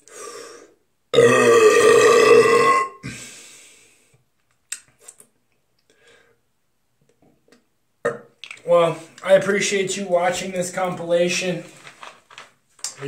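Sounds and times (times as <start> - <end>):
breathy exhale: 0.0 - 0.8
man burping loudly: 1.1 - 3.2.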